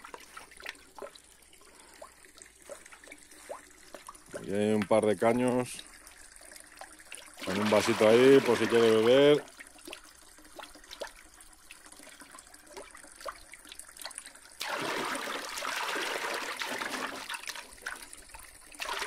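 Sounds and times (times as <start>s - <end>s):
small water drips: 0.0s - 19.0s
fountain water splashing: 7.4s - 9.4s.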